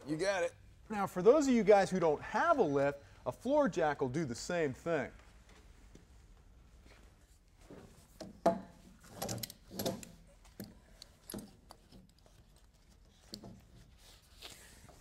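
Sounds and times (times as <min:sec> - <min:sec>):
strap rubbing and scraping: 0:06.8 - 0:15.0.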